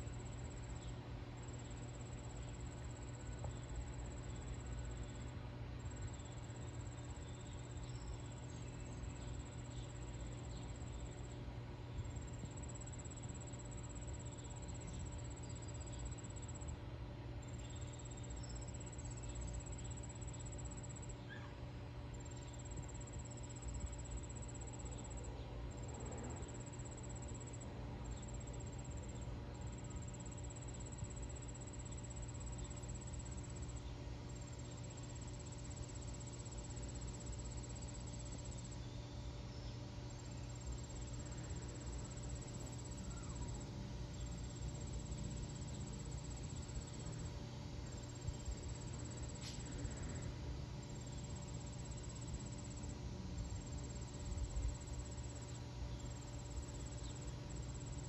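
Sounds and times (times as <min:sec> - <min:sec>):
insects trilling: 0:00.0 - 0:16.8, 0:17.4 - 0:58.0
steady low hum: 0:00.0 - 0:58.0.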